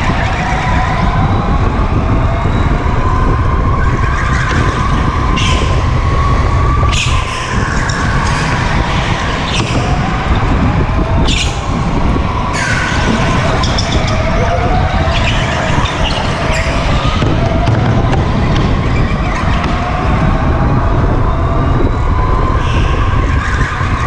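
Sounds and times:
wind and vibration rumble: 0.0s - 24.0s
tyre squeal: 12.6s - 17.2s.

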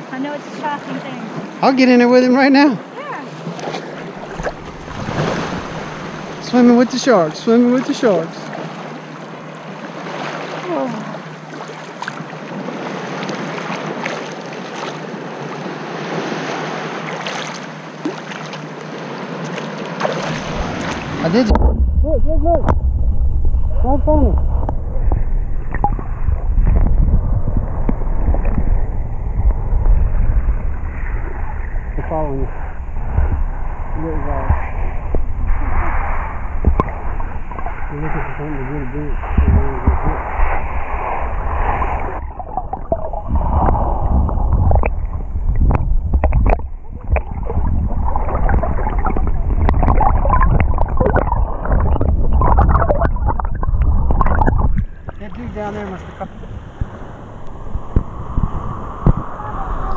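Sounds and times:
muffled underwater water rumble: 3.2s - 11.7s, 20.0s - 59.9s
sharp clicks and crackles: 45.6s - 47.3s.

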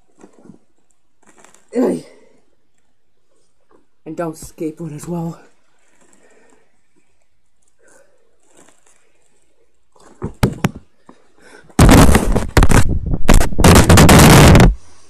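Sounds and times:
microphone handling rumble: 11.8s - 14.8s.

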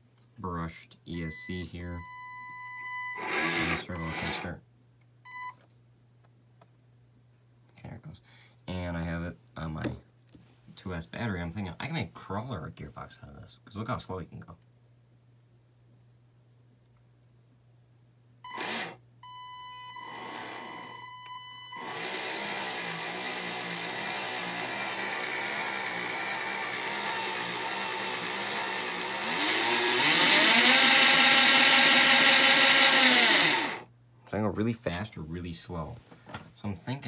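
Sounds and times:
electric motor driving drill gearbox: 2.9s - 4.5s, 18.5s - 19.0s, 19.9s - 33.8s.

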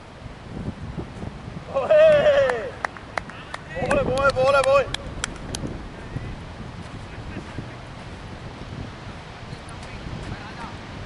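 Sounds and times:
wind noise on microphone: 0.0s - 11.0s
hand claps: 2.4s - 5.7s.

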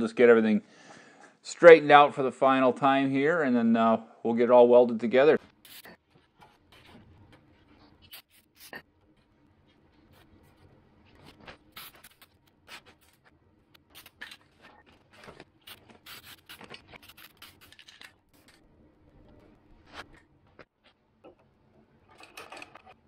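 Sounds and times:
aerosol spray can hissing: 15.7s - 17.8s.

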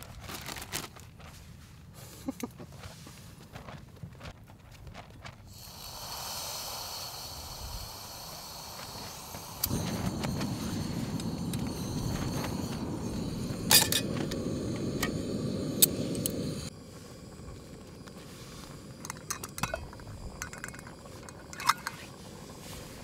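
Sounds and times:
low rushing noise: 6.0s - 19.1s
small metallic clinks: 19.0s - 22.0s.

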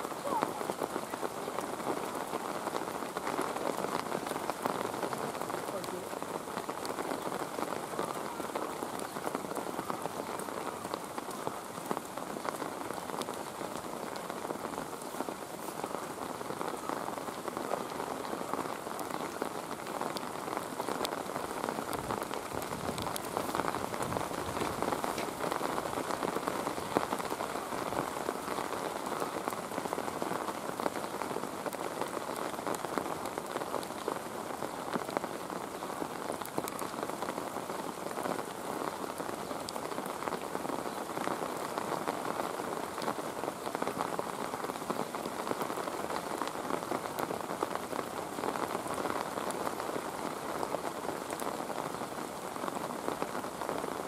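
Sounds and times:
rain falling: 0.0s - 54.0s.

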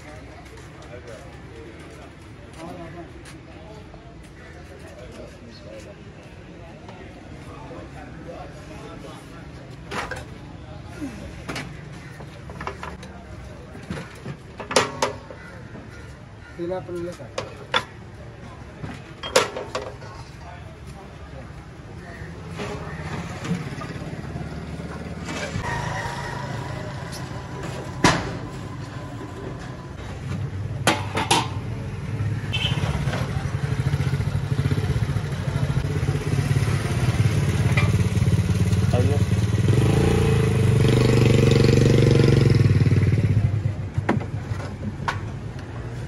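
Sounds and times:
street noise: 0.0s - 46.0s.

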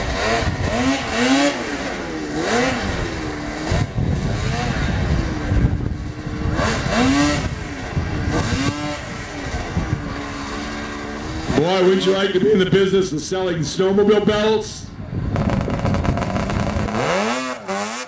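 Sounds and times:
snowmobile engine revving: 0.0s - 18.0s.

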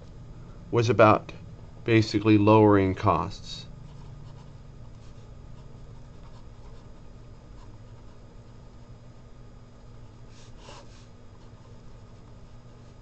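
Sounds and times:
steady low hum: 0.0s - 13.0s
pen scratching on paper: 3.9s - 8.2s, 10.4s - 13.0s.

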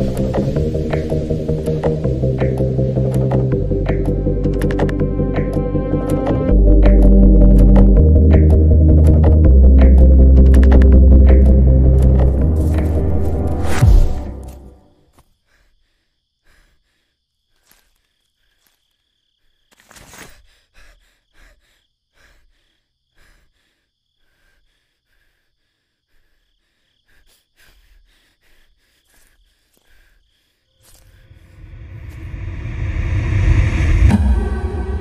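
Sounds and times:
low rumbling whoosh riser: 0.0s - 14.6s, 31.3s - 35.0s
sharp hit: 10.6s - 14.7s, 31.6s - 35.0s
high insect chirring: 21.3s - 31.8s.

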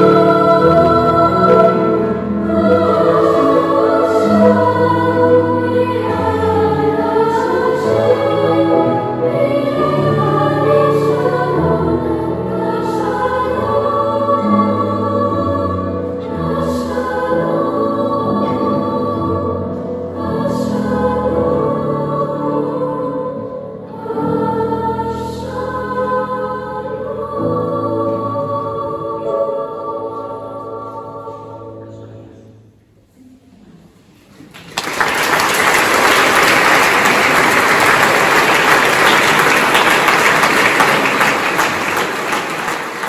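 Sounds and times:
children's choir singing: 0.0s - 43.0s
audience applause: 34.5s - 43.0s.

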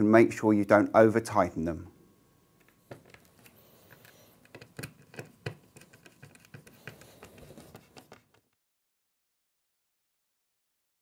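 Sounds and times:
screwdriver clicks and scrapes: 2.6s - 8.4s.

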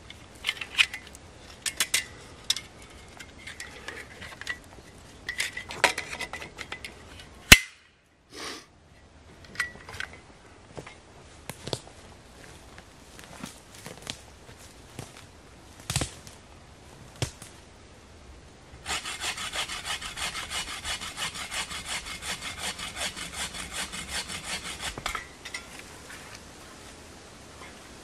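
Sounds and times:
dry twigs snapping underfoot: 11.4s - 11.9s, 12.8s - 16.4s, 17.1s - 17.6s
bow saw cutting wood: 18.8s - 25.3s.

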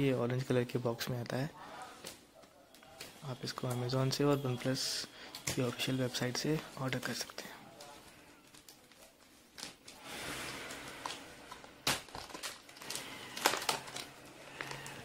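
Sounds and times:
plastic shrink wrap crinkling: 4.6s - 10.0s, 10.7s - 15.0s
plastic wrap snapping: 11.0s - 15.0s.

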